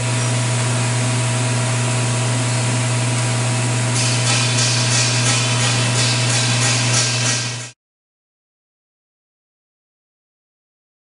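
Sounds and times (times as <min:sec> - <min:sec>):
machine humming and hissing: 0:00.0 - 0:07.8
rhythmic swishing: 0:04.0 - 0:07.8.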